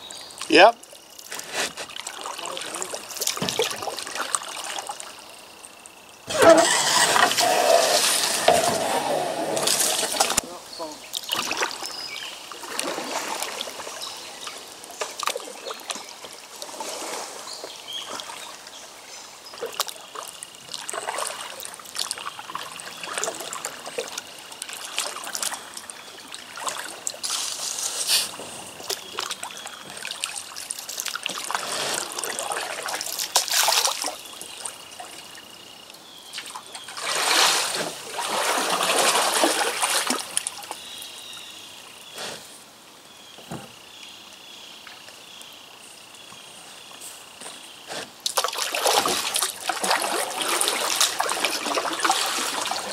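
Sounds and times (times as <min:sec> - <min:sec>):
water trickling: 0:00.0 - 0:27.9, 0:28.7 - 0:42.0, 0:48.2 - 0:52.9
paddle strokes splashing: 0:06.3 - 0:10.6, 0:12.5 - 0:18.5, 0:19.6 - 0:35.2, 0:36.4 - 0:40.8, 0:47.9 - 0:52.9.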